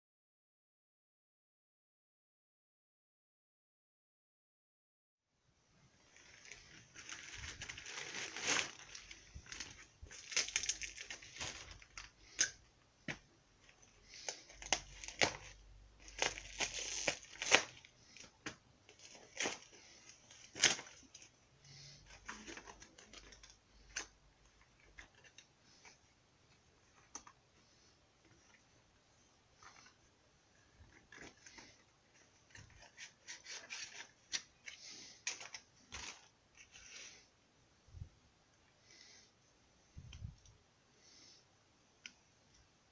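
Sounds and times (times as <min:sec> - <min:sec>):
plastic bag rustling and crackling: 0:06.0 - 0:26.0, 0:29.6 - 0:37.2.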